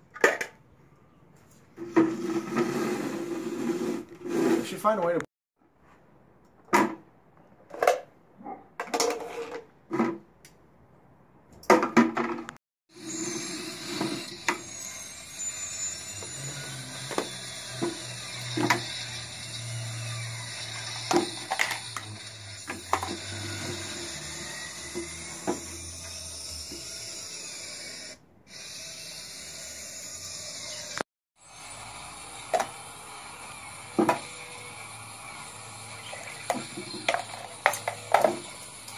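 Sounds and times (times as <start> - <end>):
plastic toys clicking and clattering: 20.9 - 23.2, 36.5 - 38.9.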